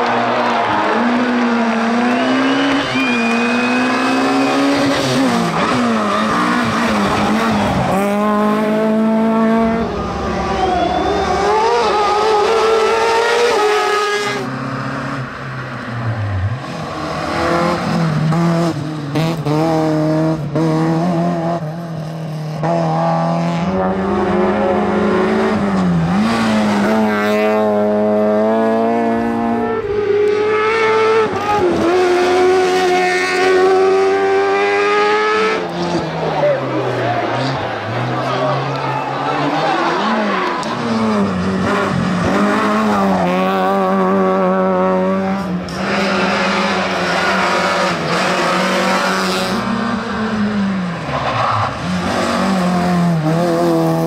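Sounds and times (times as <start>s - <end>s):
rally car engines revving: 0.0s - 54.0s
tyre squeal: 10.4s - 12.4s.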